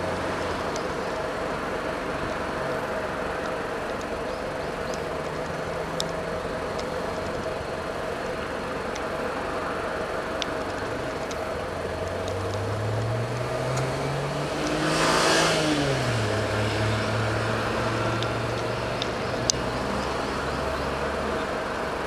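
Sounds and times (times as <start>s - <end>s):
background traffic hum: 0.0s - 22.0s
vehicle driving past: 12.4s - 21.6s.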